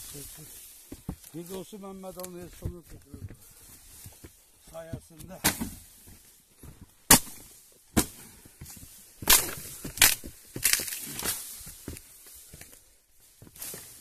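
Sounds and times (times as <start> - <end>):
reeds and poles snapping: 7.1 - 8.2, 9.2 - 11.7.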